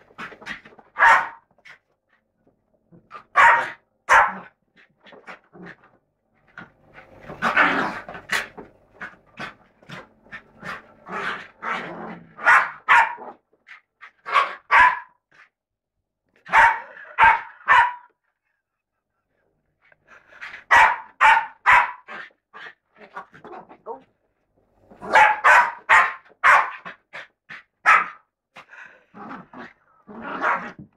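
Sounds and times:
dog barking: 0:01.0 - 0:01.4, 0:03.3 - 0:04.5, 0:12.4 - 0:13.3, 0:14.3 - 0:15.2, 0:16.4 - 0:18.1, 0:20.7 - 0:22.1, 0:25.1 - 0:26.8, 0:27.8 - 0:28.3.

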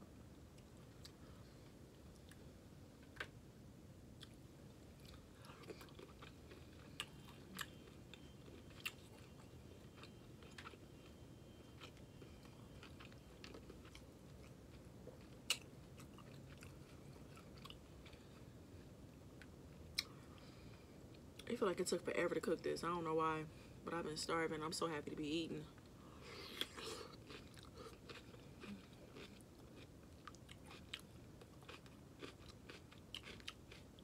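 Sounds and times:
close-up chewing: 0:04.2 - 0:18.5, 0:26.3 - 0:34.0.

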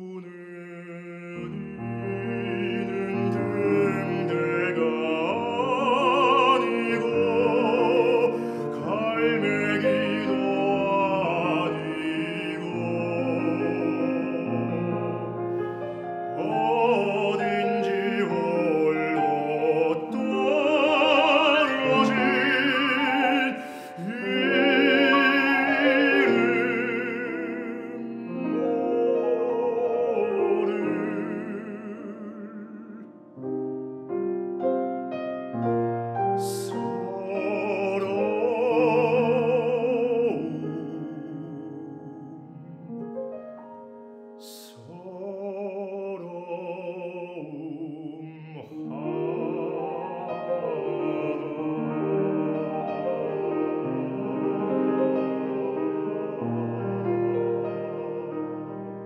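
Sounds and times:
man singing operatically: 0:00.0 - 0:33.3, 0:36.4 - 0:42.9, 0:44.4 - 0:59.0
piano accompaniment: 0:00.0 - 0:59.0.

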